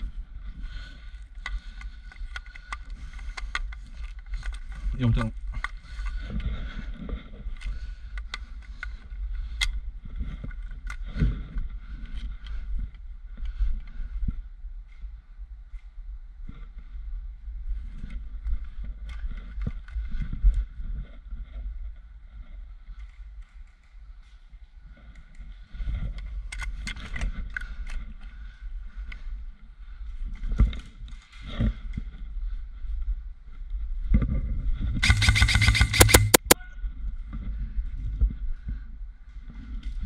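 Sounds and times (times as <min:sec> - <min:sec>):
wind rumble on microphone: 0:00.0 - 0:35.1, 0:36.6 - 0:40.0
airsoft rifle motor hum: 0:35.0 - 0:36.6
sharp gunshot cracks: 0:35.0 - 0:36.6.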